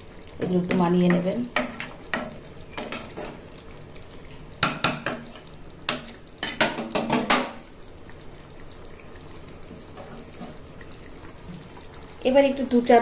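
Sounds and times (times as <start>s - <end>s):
curry simmering: 0.0s - 13.0s
spatula knocking and scraping pan: 0.4s - 3.5s, 4.5s - 7.6s.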